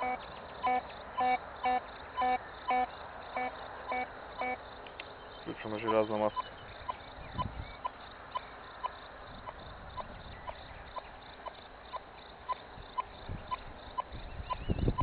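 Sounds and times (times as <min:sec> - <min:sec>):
metal detector beeps: 0:00.0 - 0:04.6.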